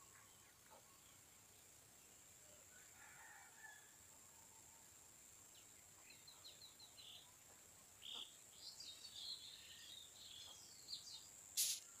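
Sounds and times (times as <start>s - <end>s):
small birds chirping: 0.0s - 12.0s
steady high-pitched hiss: 0.0s - 12.0s
sharp click: 11.6s - 11.9s.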